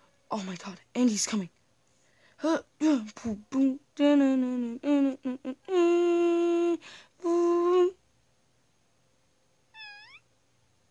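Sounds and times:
person humming: 4.0s - 8.0s.

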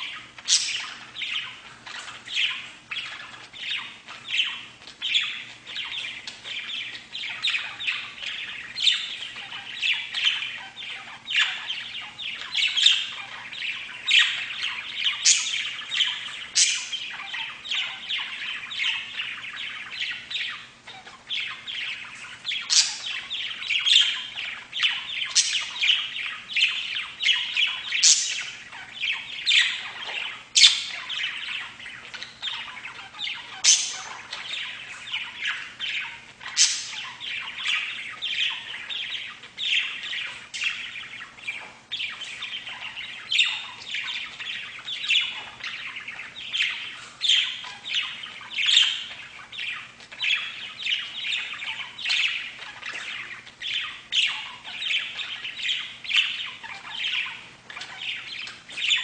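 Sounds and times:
budgerigars chattering and warbling: 0.0s - 59.0s.

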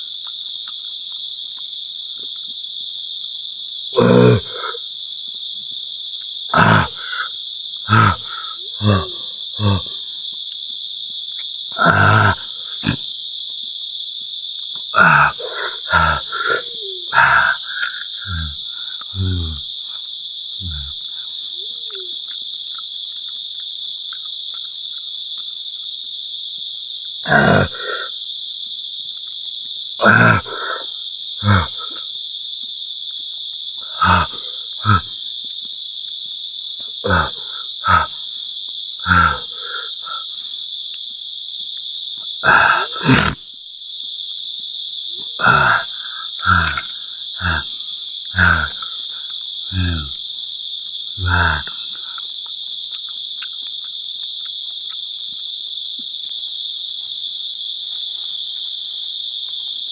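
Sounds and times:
insect chorus droning: 0.0s - 59.9s
man chewing and grunting: 4.0s - 4.9s, 6.2s - 13.4s, 14.6s - 21.4s, 27.0s - 28.7s, 29.3s - 32.3s, 33.7s - 41.2s, 42.2s - 43.5s, 45.2s - 55.1s.

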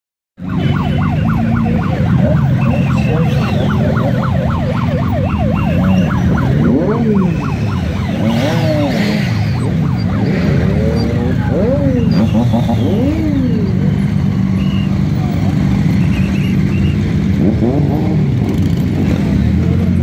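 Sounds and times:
electronic siren yelping and wailing: 0.4s - 15.3s
motorcycle engines running: 0.4s - 20.0s.

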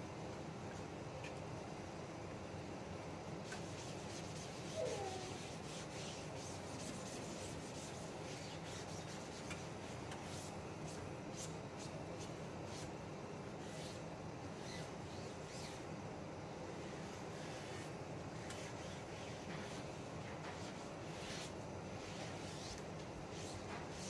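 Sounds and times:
cloth rag wiping hot griddle: 16.8s - 24.0s.

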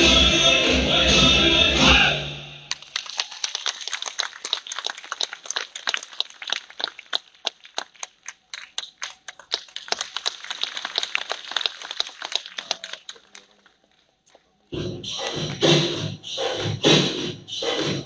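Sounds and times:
hand claps: 2.7s - 13.7s.

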